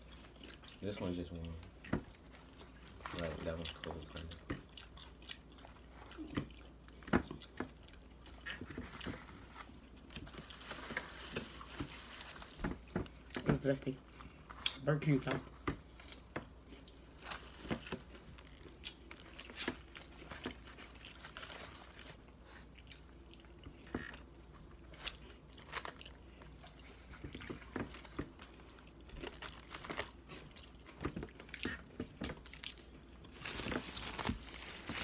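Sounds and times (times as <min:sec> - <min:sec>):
crunching onion rings: 0:15.8 - 0:35.0.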